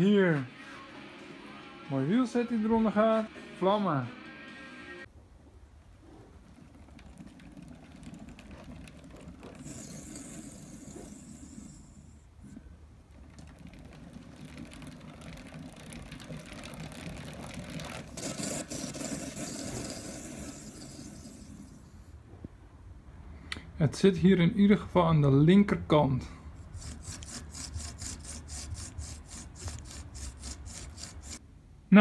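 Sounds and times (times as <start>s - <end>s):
bicycle hub rough mechanical noise: 6.0s - 22.1s, 26.6s - 31.4s.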